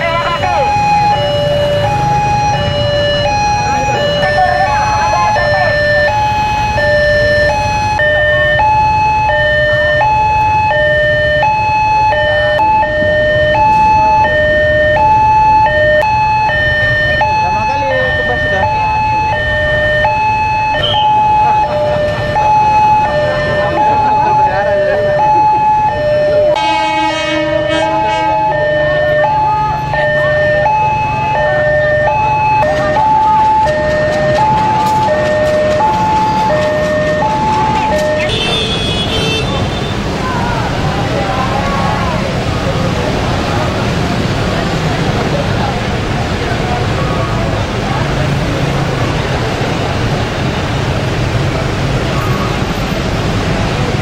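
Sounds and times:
level crossing two-tone alarm: 0:00.0 - 0:38.5
low rumble of idling traffic: 0:00.0 - 0:54.0.

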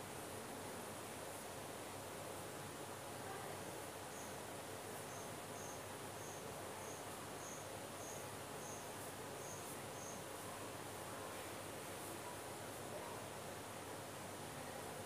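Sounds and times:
faint steady hiss: 0:00.0 - 0:15.0
cricket chirping: 0:05.1 - 0:10.2.

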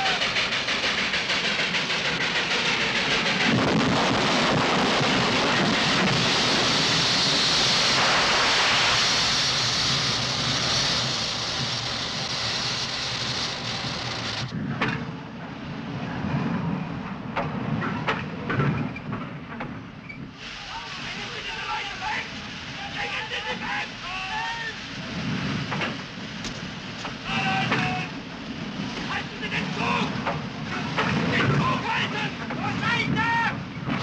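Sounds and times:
steam hissing: 0:00.0 - 0:14.5, 0:20.3 - 0:34.0
low rumble: 0:00.0 - 0:20.0.

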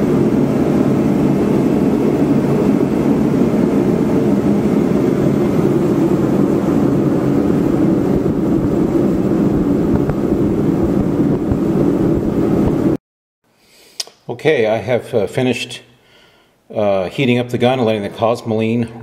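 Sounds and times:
forced-air heater blowing: 0:00.0 - 0:13.0.

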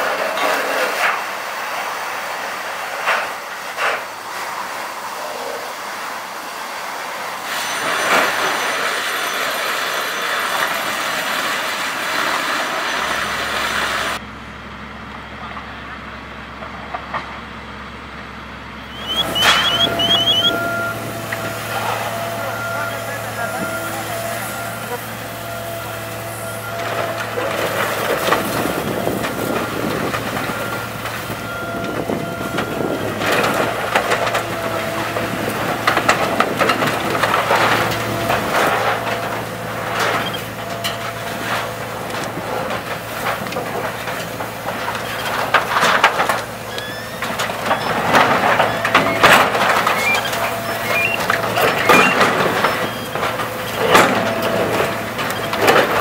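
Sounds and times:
heavy machine droning: 0:01.8 - 0:56.0
metal crunching and banging: 0:07.5 - 0:14.2, 0:18.9 - 0:56.0.

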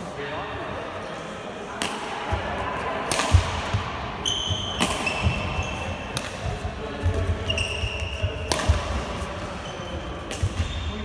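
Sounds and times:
racket hitting shuttlecock: 0:01.8 - 0:10.8
shoes squeaking on floor: 0:04.2 - 0:06.1, 0:07.0 - 0:08.5, 0:09.1 - 0:11.0.

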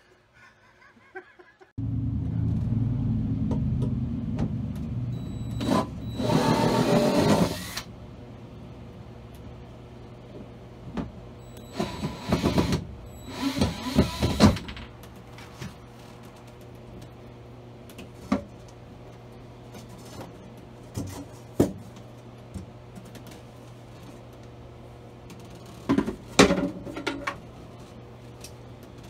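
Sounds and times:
low steady hum: 0:00.0 - 0:06.3.

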